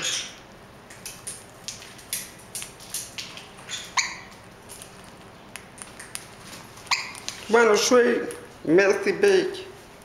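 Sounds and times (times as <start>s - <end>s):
bird beak cracking seeds: 0.9s - 7.5s.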